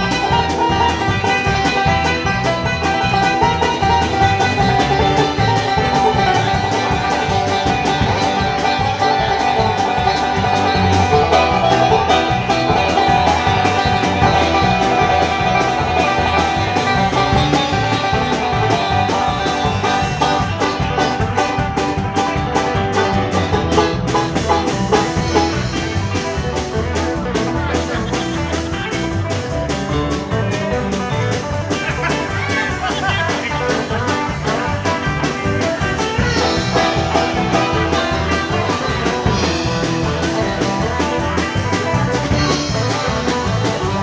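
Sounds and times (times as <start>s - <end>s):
banjo picking: 0.0s - 44.0s
electric bass guitar: 0.0s - 44.0s.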